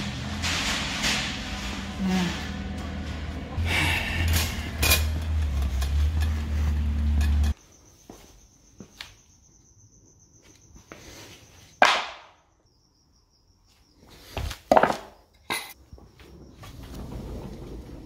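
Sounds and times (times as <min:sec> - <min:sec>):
plywood pieces knocking: 0:14.7 - 0:15.2.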